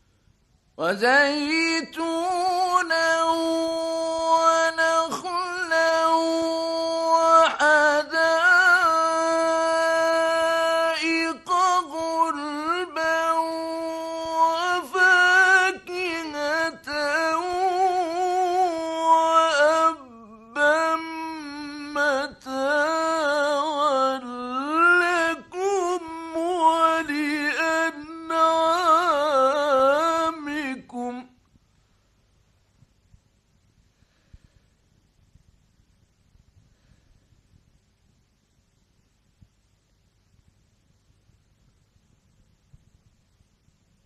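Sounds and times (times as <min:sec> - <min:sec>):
man chanting recitation: 0:00.8 - 0:31.4.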